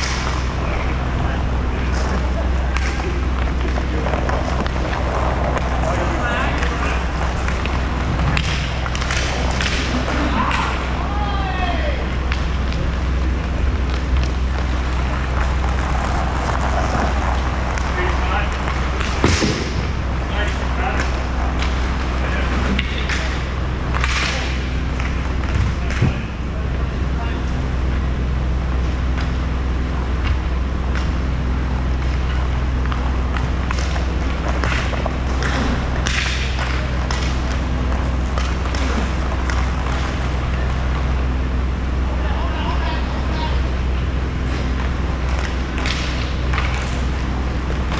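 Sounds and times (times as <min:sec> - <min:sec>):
low hum: 0:00.0 - 0:47.9
stick scraping floor: 0:02.0 - 0:10.8, 0:13.9 - 0:19.7
sticks and pucks clicking: 0:06.5 - 0:10.9, 0:32.8 - 0:40.9, 0:44.8 - 0:47.1.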